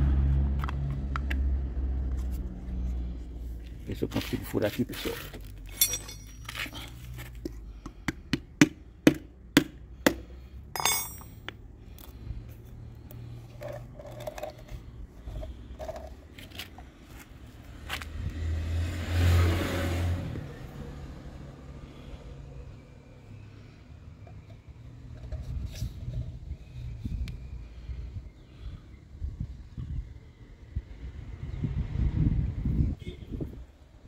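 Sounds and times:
metallic clink: 5.7 - 6.6, 10.7 - 11.5.

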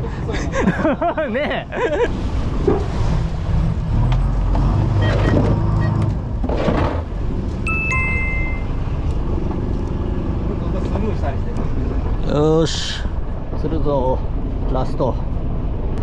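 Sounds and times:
boat engine humming: 0.0 - 16.0
two-note electronic chime: 7.7 - 8.8.

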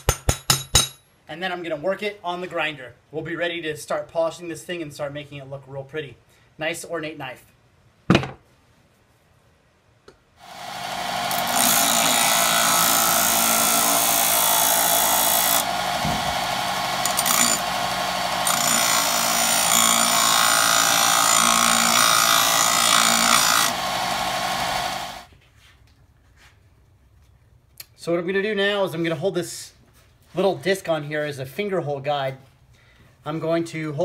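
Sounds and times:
machine hum: 10.4 - 25.3
sander grinding metal: 10.4 - 25.3.

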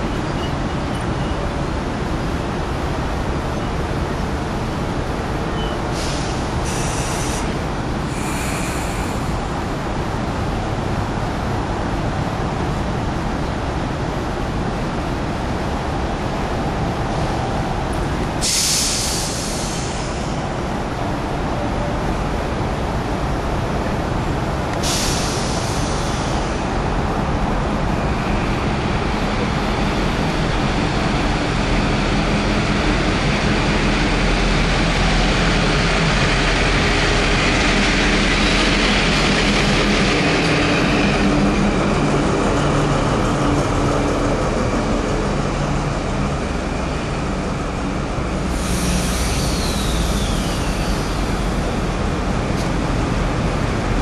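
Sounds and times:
diesel locomotive engine hum: 0.0 - 54.0
train wheel noise: 0.0 - 54.0
air hiss bursts: 6.0 - 9.3, 18.4 - 20.4, 24.8 - 26.6, 48.5 - 51.6.

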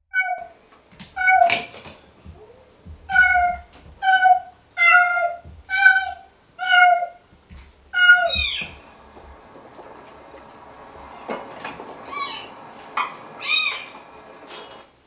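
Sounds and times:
cat mewing: 2.4 - 7.2, 7.9 - 8.8.

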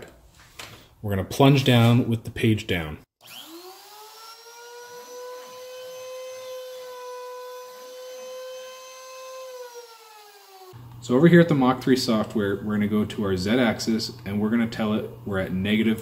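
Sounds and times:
router spindle motor whining: 3.2 - 10.8.

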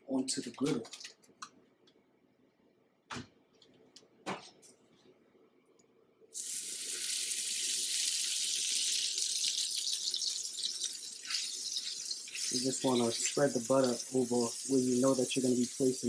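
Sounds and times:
butter sizzling on a griddle: 6.4 - 16.0.

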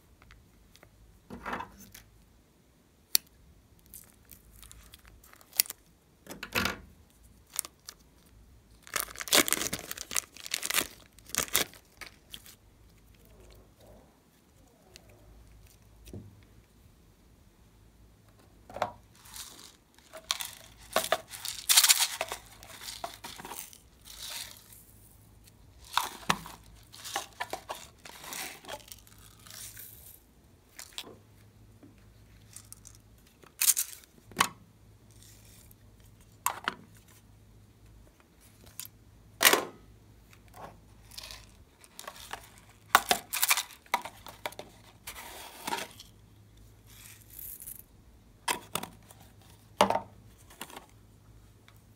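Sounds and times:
plastic pots rustling and clicking: 18.3 - 24.7, 25.8 - 29.8, 40.3 - 46.2, 48.4 - 51.0.

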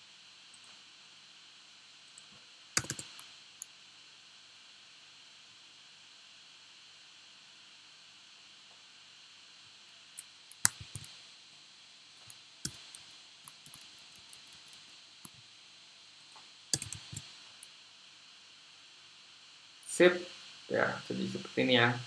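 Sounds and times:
faint steady hiss: 0.0 - 22.0
keyboard and mouse clicks: 2.1 - 3.2, 10.2 - 11.1, 12.2 - 15.4, 16.2 - 17.3.

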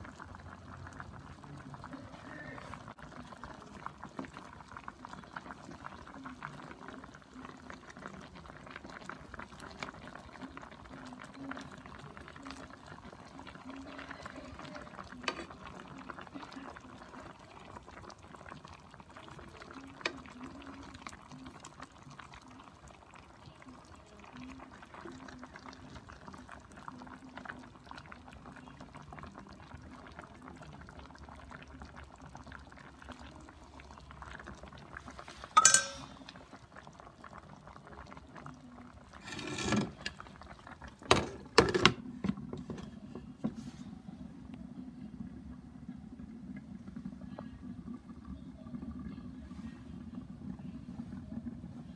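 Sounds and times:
sauce bubbling in skillet: 0.0 - 51.9
ringing clink: 35.6 - 36.2
glass lid clanking: 35.6 - 36.3.

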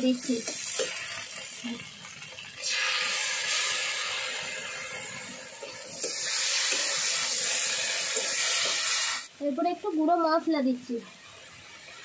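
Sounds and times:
tomato paste sizzling in hot oil: 0.0 - 12.0.

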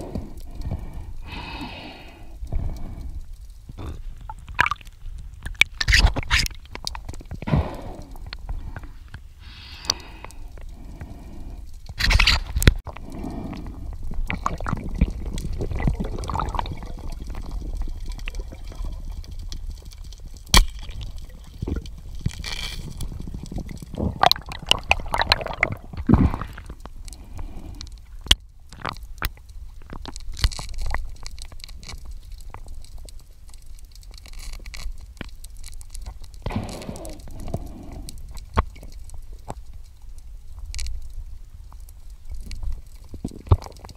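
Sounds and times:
underwater rushing and gurgling: 0.0 - 33.0.

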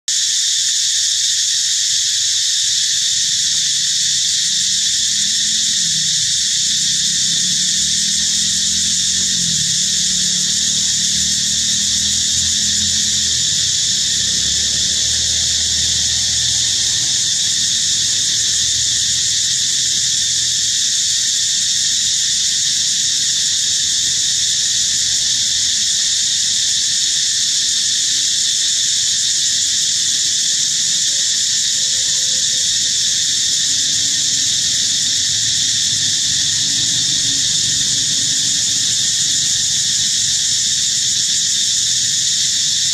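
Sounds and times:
insect chorus drone: 0.1 - 42.9
low rumble: 5.5 - 19.3.

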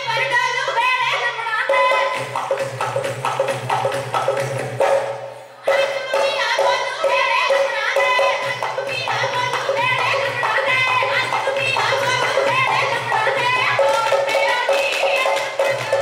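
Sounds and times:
women singing: 0.0 - 2.2, 5.6 - 16.0
rhythmic percussion beat: 0.0 - 16.0.

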